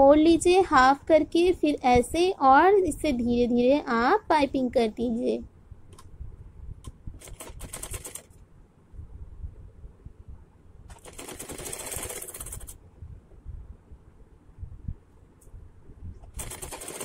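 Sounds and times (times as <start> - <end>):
sewing machine stitching: 7.2 - 8.4, 10.9 - 12.8, 16.3 - 17.0.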